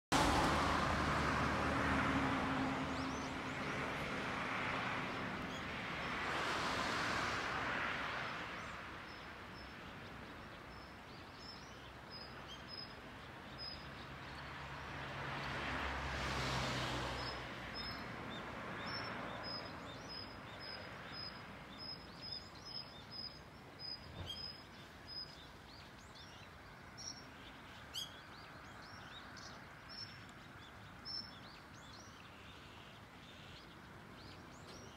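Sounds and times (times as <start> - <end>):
vehicle passing by: 0.1 - 8.5, 14.2 - 20.0.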